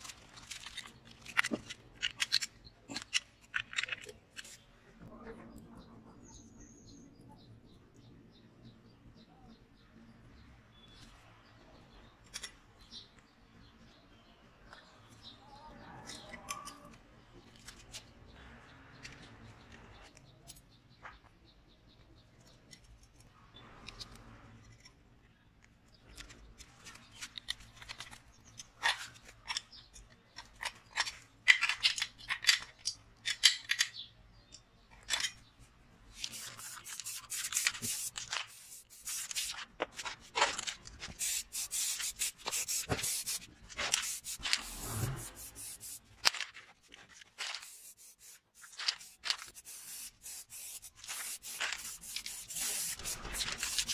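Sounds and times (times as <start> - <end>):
metal parts clicking and scraping: 0.0 - 4.7, 26.1 - 35.5, 36.1 - 53.9
short hissing rubbing bursts: 36.2 - 39.6, 41.1 - 46.1, 47.5 - 53.9.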